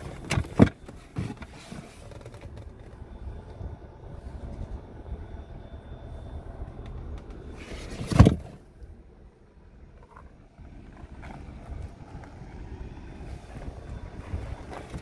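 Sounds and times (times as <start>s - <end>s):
wind noise on microphone: 10.6s - 15.0s.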